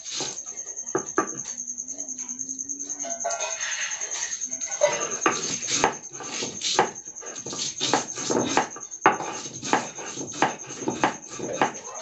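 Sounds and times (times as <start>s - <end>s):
stone grinder rubbing on stone slab: 4.8s - 12.0s.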